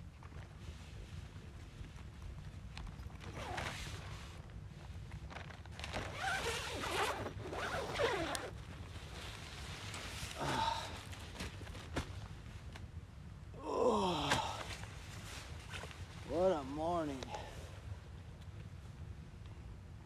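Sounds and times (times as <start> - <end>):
tent door zipper pulled open: 3.2 - 4.4, 5.4 - 8.6.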